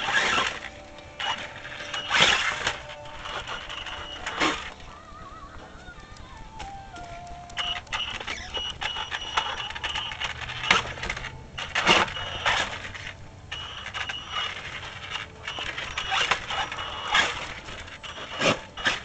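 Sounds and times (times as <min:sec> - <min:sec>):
electric motor whining: 0:00.0 - 0:05.0, 0:06.0 - 0:19.0
clicks and knocks from drivetrain: 0:06.6 - 0:13.2.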